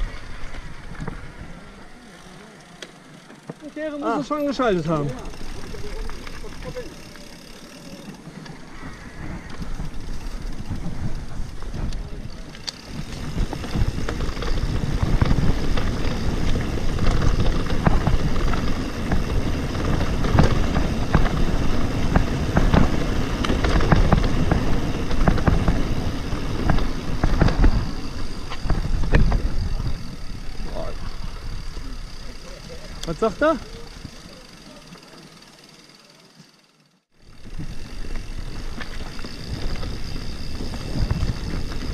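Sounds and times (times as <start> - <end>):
bike rattling and knocking: 0.0 - 41.9
bike tyres rumbling on gravel: 0.0 - 41.9
wind on microphone: 8.7 - 32.1, 37.5 - 41.9.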